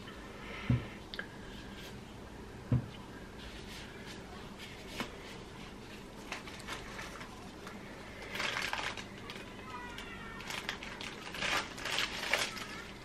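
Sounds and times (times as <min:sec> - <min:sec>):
gloves rustling and squeaking: 0:03.4 - 0:13.0.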